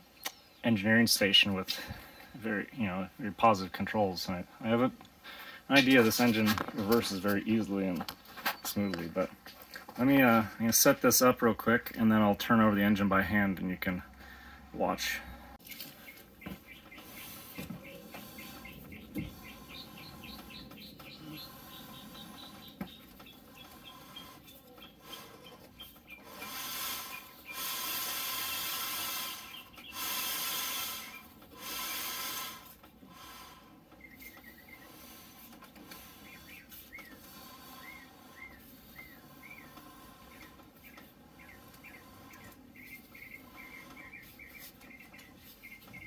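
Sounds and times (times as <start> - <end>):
small birds chirping: 0.0 - 46.0
loud hissing bursts: 26.2 - 33.8.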